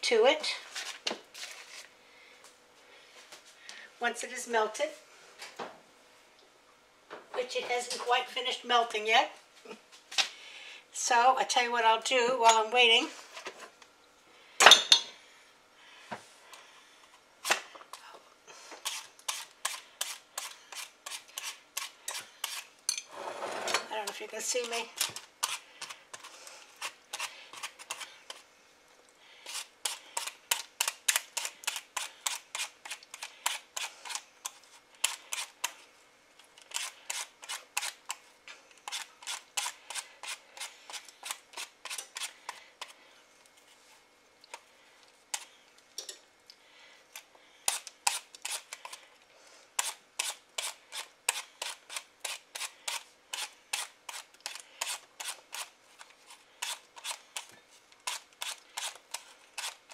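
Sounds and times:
peeler scraping apple skin: 18.8s - 22.7s, 23.3s - 28.4s, 29.4s - 35.8s, 36.5s - 43.0s, 47.1s - 49.0s, 49.8s - 59.9s.

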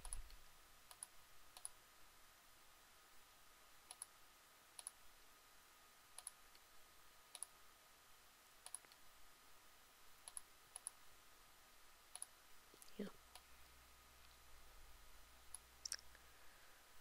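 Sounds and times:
computer mouse clicks: 0.0s - 1.8s, 3.9s - 4.1s, 4.8s - 5.0s, 6.2s - 6.7s, 7.3s - 7.6s, 8.6s - 9.0s, 10.2s - 11.0s, 12.1s - 13.5s, 15.5s - 16.1s
quiet steady hum: 0.0s - 17.0s.

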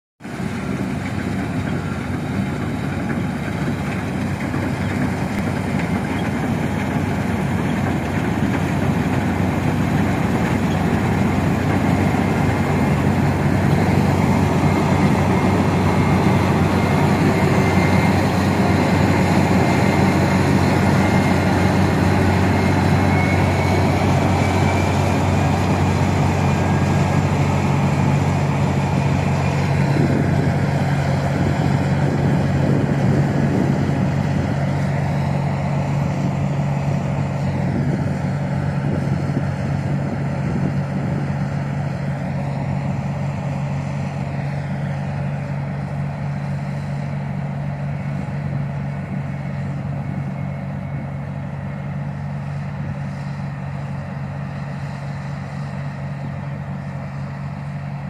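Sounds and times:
combine harvester engine hum: 0.2s - 58.0s
threshing machinery noise: 0.2s - 58.0s.

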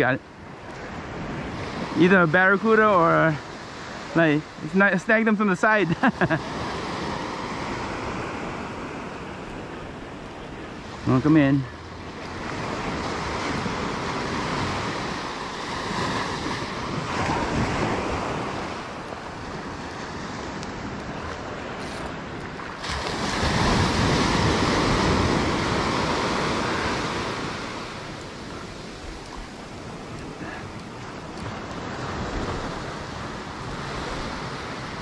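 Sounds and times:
surf washing on beach: 0.0s - 35.0s
wind on microphone: 11.9s - 35.0s.

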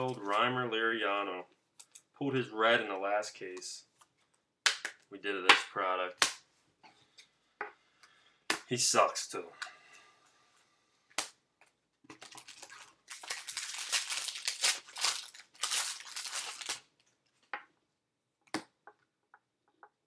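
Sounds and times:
foil wrapper tearing and crinkling: 12.2s - 17.0s.

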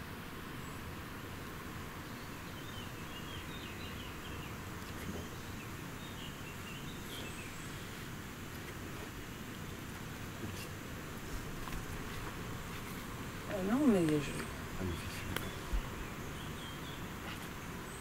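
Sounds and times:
background hiss: 0.0s - 18.0s
faint bird chirps: 2.0s - 8.1s, 13.5s - 18.0s.

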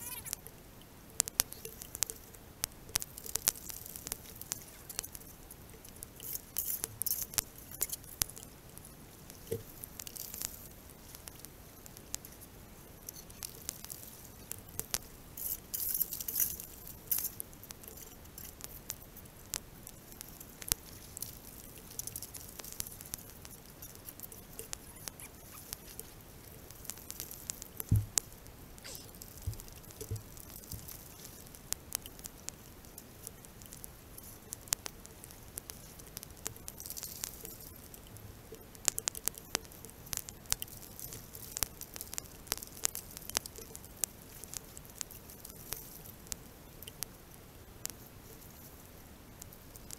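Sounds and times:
rain pattering: 0.0s - 49.9s
dull thump: 27.9s - 28.1s.

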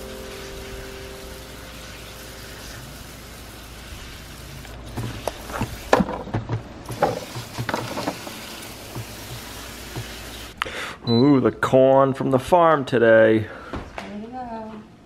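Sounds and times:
hose nozzle spray hissing: 0.1s - 6.0s, 6.9s - 10.6s.

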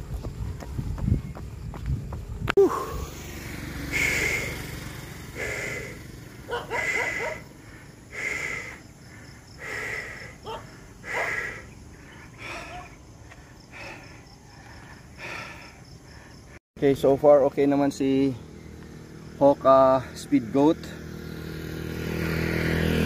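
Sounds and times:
heavy rhythmic breathing: 3.8s - 16.6s.

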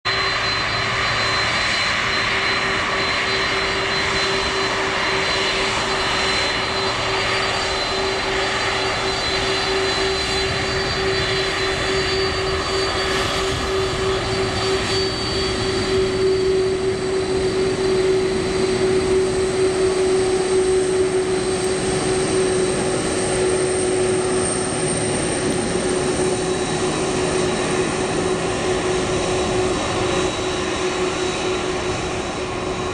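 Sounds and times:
jet engine whine: 0.0s - 32.9s.

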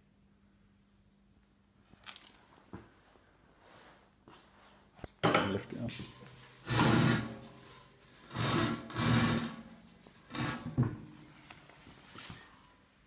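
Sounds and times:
metal scraping on wood: 6.0s - 11.3s.

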